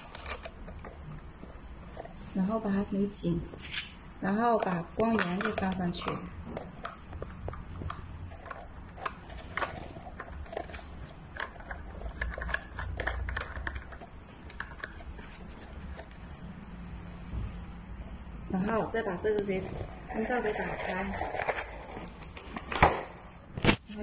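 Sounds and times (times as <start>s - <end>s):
clicks and scrapes of lamp parts: 4.6s - 16.2s.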